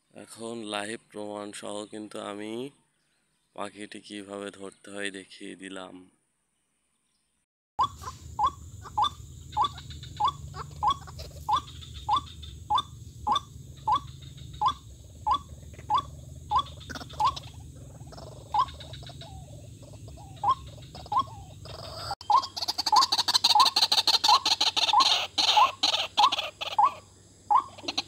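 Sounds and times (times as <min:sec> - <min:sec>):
steady low hum: 0:07.8 - 0:23.4
bird calling: 0:07.8 - 0:28.0.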